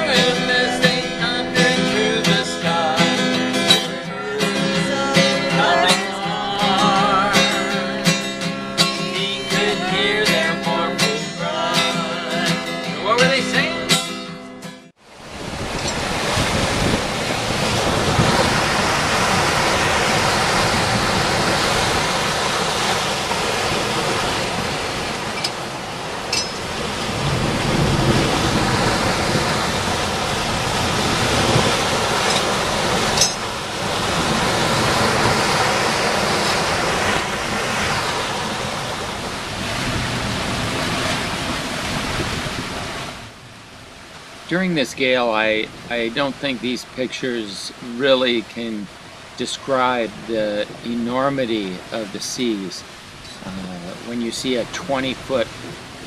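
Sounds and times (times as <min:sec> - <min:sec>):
person singing: 0:00.0 - 0:08.0, 0:08.8 - 0:14.1
acoustic guitar strumming: 0:00.0 - 0:15.0, 0:15.8 - 0:41.5
heavy seas on boat deck: 0:00.0 - 0:56.0
gale-force wind: 0:14.9 - 0:56.0.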